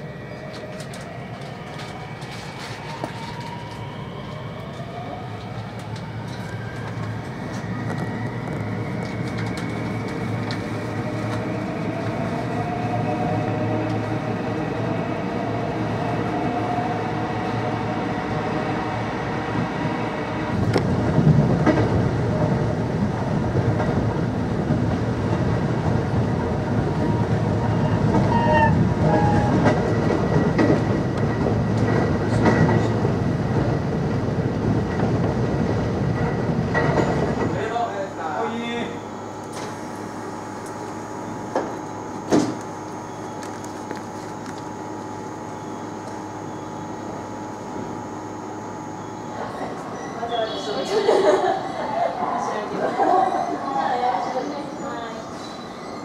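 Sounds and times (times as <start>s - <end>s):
train rolling noise: 0.0s - 56.0s
electric train motor whine: 38.6s - 51.8s.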